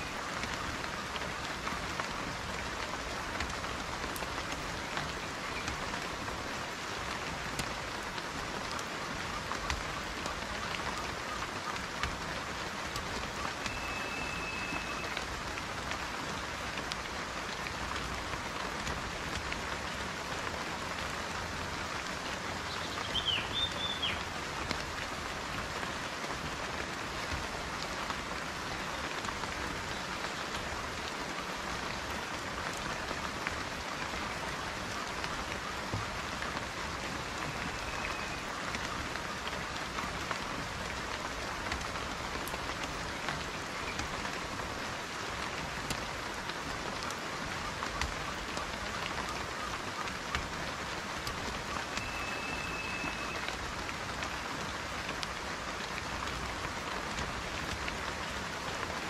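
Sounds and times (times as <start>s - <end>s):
rain on leafy foliage: 0.0s - 59.0s.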